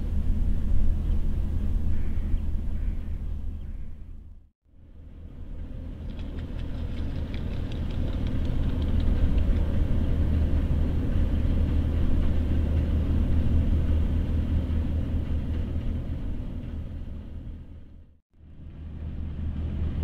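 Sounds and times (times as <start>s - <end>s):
ship engine rumble: 0.0s - 20.0s.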